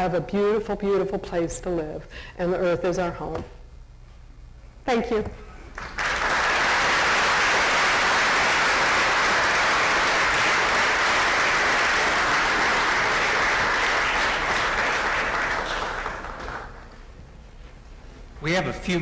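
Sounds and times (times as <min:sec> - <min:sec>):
audience applauding: 0:05.7 - 0:17.1.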